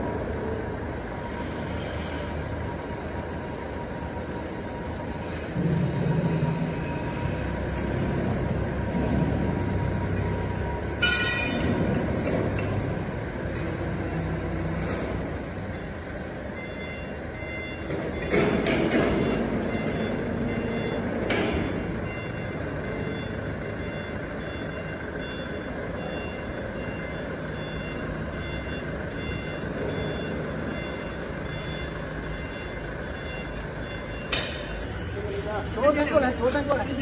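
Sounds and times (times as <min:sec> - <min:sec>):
factory machinery noise: 0:00.0 - 0:37.0
sharp metallic knocks: 0:11.0 - 0:12.9, 0:17.9 - 0:20.1, 0:34.2 - 0:34.8
electronic warning beeper: 0:15.7 - 0:36.2.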